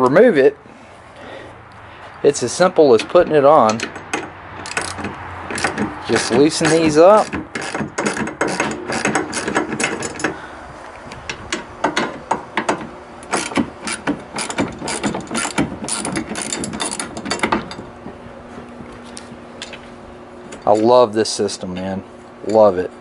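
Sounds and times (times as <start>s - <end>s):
ratchet wrench clicking: 3.0s - 10.3s, 11.5s - 17.5s.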